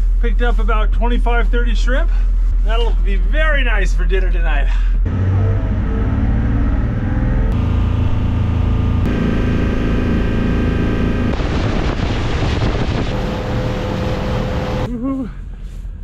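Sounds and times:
boat engine running: 5.1s - 14.9s.

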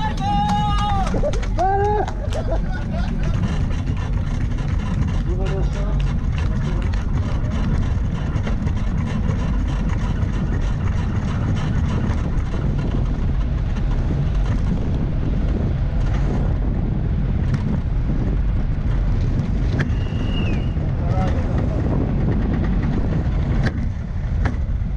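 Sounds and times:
cart wheels and body rattling: 0.0s - 24.9s
road rumble: 0.0s - 24.9s
wind noise: 0.0s - 24.9s
knocks over bumps: 20.7s - 24.9s.

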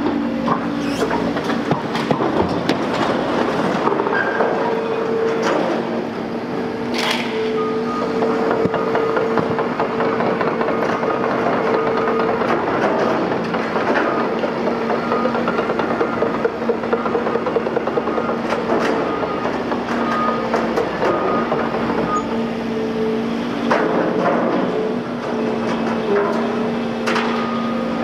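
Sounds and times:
excavator hydraulic hum: 0.0s - 28.0s
hydraulic whine: 0.4s - 1.6s.

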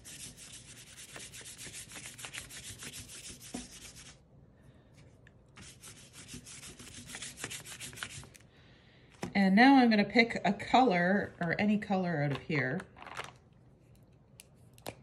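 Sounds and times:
paintbrush brushing on paper: 0.0s - 4.2s, 5.6s - 8.3s.

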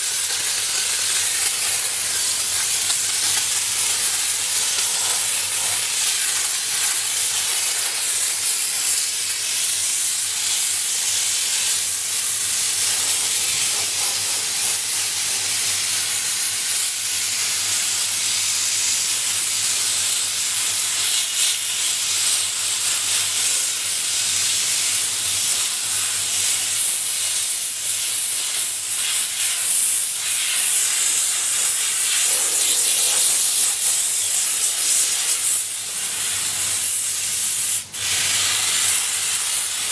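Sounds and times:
steam gun hissing: 0.0s - 39.9s.

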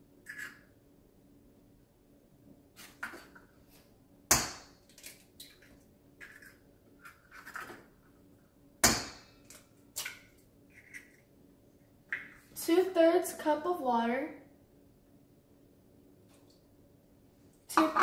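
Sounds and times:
eggshell clicks and scrapes: 10.7s - 11.2s.

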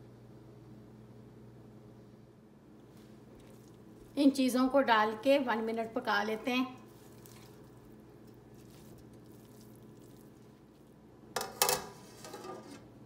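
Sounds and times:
metal lid clanking on pot: 11.4s - 12.8s.

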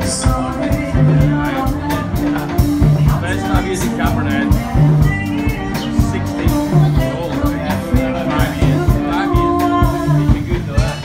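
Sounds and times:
bass and drum beat: 0.0s - 11.0s
guitar: 0.0s - 11.0s
person singing: 0.0s - 11.0s.

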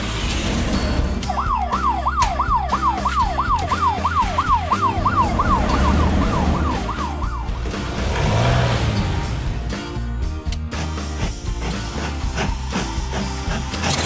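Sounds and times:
electronic toy siren wailing: 1.3s - 7.5s.

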